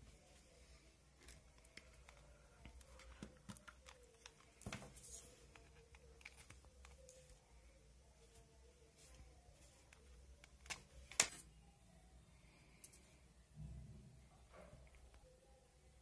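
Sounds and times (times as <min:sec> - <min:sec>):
faint steady hum: 0:00.0 - 0:16.0
hands handling cables and phone: 0:01.1 - 0:07.4, 0:08.2 - 0:11.5.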